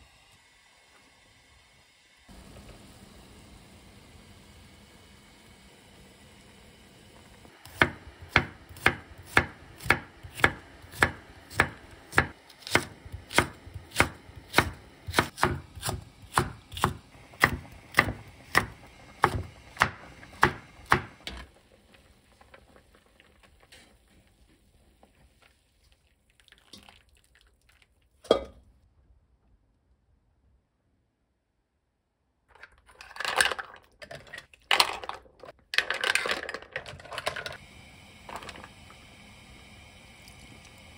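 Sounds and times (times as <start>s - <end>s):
knife chopping on wooden board: 7.6s - 21.1s.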